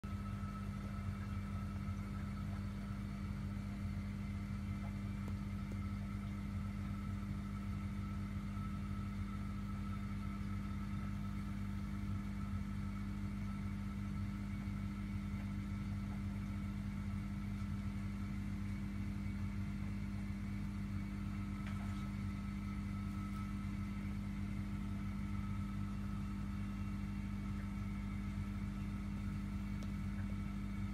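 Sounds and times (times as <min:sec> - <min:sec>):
machine hum with faint whine: 0:00.0 - 0:30.9.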